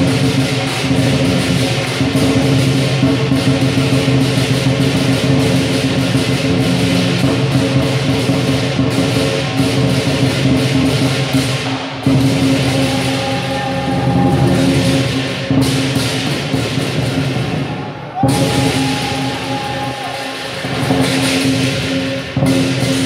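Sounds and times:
big drum beating: 0.0s - 23.0s
cymbals crashing: 0.0s - 23.0s.

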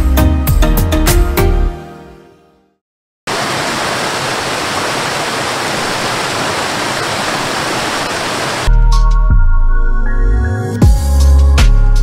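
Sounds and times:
music: 0.0s - 2.8s, 8.7s - 12.0s
waterfall rushing: 3.3s - 8.7s.

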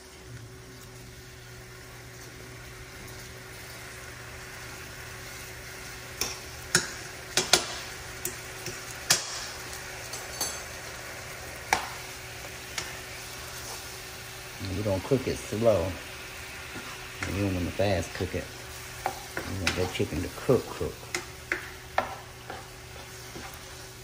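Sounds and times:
chicken sizzling in oil: 0.0s - 24.0s
utensil scraping a pan: 21.5s - 24.0s.

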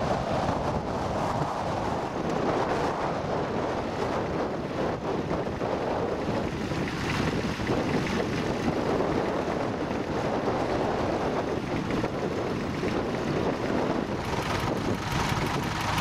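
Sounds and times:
wind buffeting microphone: 0.0s - 16.0s
tractor engine running: 3.8s - 16.0s.

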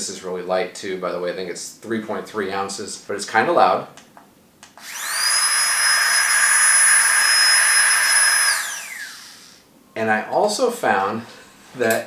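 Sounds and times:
air pump motor whine: 4.8s - 9.6s.

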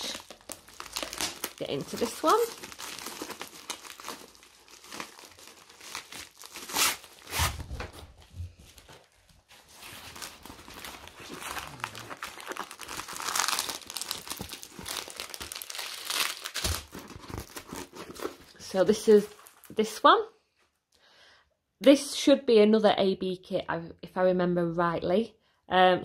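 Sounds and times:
plastic sleeve crinkling: 0.0s - 19.9s
canvas rustling: 0.8s - 18.4s.

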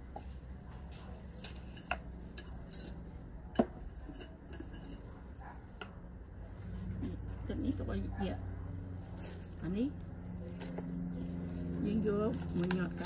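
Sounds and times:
glass jars and utensils clinking: 1.5s - 5.1s.

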